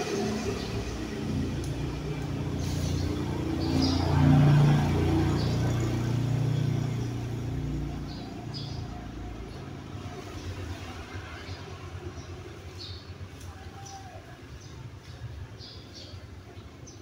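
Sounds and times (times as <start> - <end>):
motorcycle engine passing: 0.0 - 12.9.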